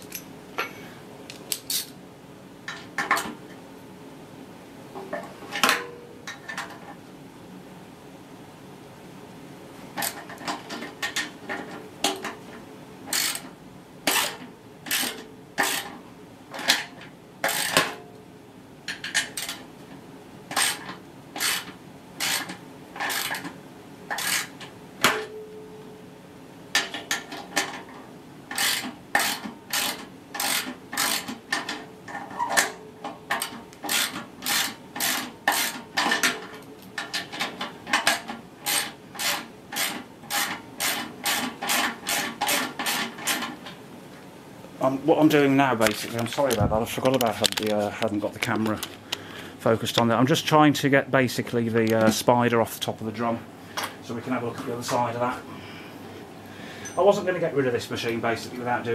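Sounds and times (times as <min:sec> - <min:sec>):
ratchet spanner clicking: 0:13.1 - 0:13.5, 0:14.1 - 0:15.9, 0:20.5 - 0:23.5, 0:24.1 - 0:24.5, 0:28.5 - 0:31.7, 0:33.4 - 0:35.8.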